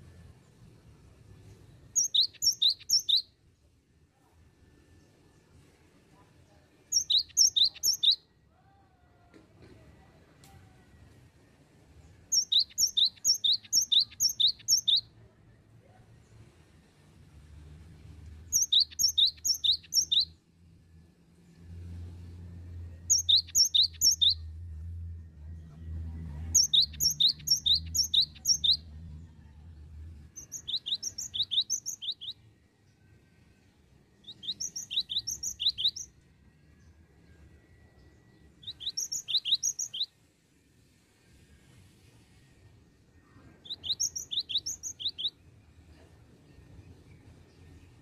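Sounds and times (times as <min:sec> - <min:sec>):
bird singing high sharp notes: 0:02.0 - 0:03.3, 0:06.9 - 0:08.2, 0:12.3 - 0:15.1, 0:18.5 - 0:20.4, 0:23.1 - 0:24.5, 0:26.5 - 0:28.9, 0:30.4 - 0:32.4, 0:34.2 - 0:36.2, 0:38.0 - 0:40.1, 0:43.6 - 0:45.4.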